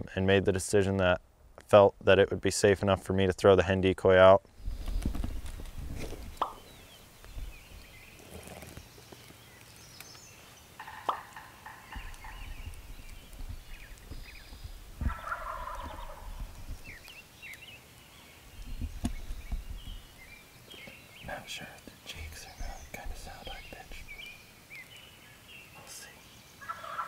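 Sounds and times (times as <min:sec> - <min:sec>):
turkeys gobbling: 0:10.8 - 0:12.8, 0:15.0 - 0:16.5, 0:26.6 - 0:27.0.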